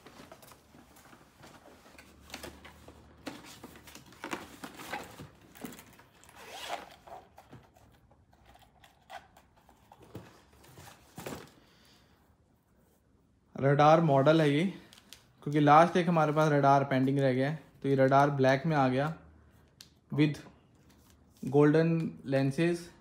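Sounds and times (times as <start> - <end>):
packaging being handled: 0.0 - 11.6
zipper being pulled open: 6.2 - 7.3.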